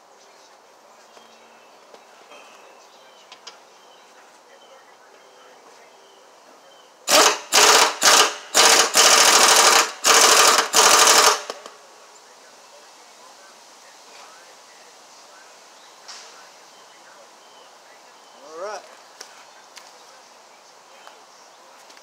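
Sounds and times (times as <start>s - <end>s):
pneumatic impact wrench hammering: 7.1s - 11.7s.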